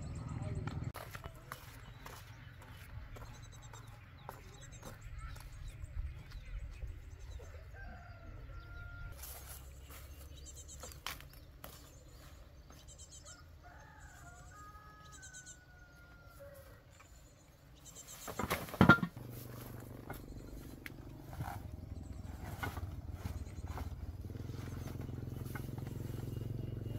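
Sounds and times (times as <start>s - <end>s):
small birds chirping: 0.0s - 26.9s
rooster crowing: 7.4s - 9.2s, 13.2s - 16.8s
rustle and thump: 18.2s - 20.2s, 22.2s - 26.0s.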